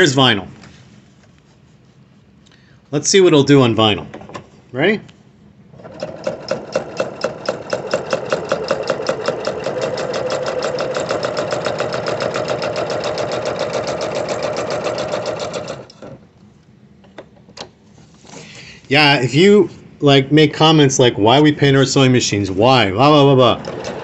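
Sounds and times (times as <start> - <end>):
sewing machine stitching: 5.7 - 16.2, 23.2 - 24.0.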